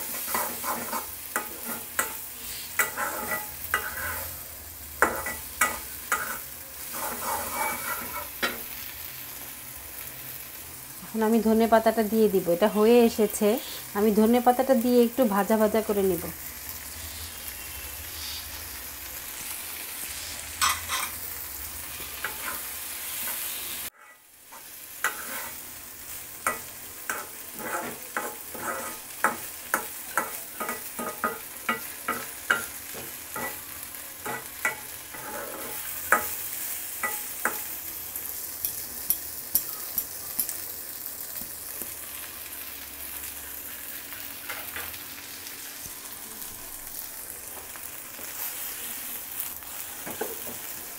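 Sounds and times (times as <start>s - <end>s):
metal spoon scraping and tapping pan: 0.0s - 4.3s, 5.0s - 8.7s, 20.6s - 21.2s, 22.1s - 25.6s, 26.4s - 33.6s, 34.2s - 36.4s, 37.0s - 37.8s, 38.6s - 40.6s
food sizzling in a wok: 0.0s - 50.9s.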